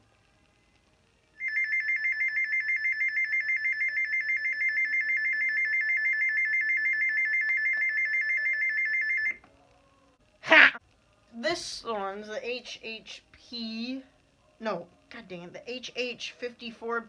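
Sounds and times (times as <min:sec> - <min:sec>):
two-tone warbling alarm: 0:01.4 - 0:09.4.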